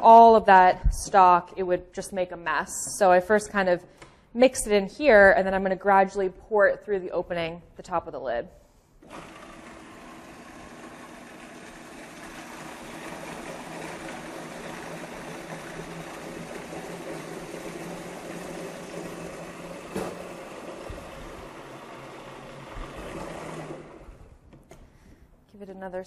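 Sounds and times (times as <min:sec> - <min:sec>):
food processor motor running: 0:09.0 - 0:24.3.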